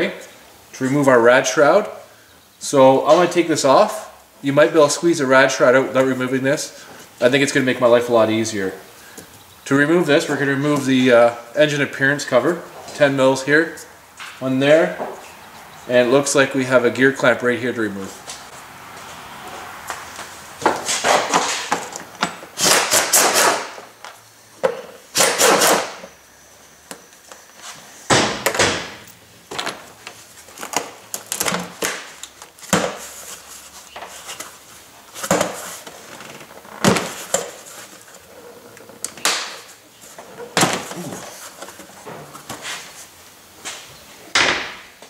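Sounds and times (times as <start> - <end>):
rustling handling noise: 29.4 - 43.9.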